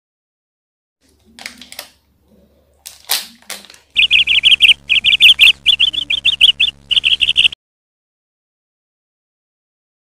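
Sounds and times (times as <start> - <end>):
high chirping sound effect: 4.0 - 7.6.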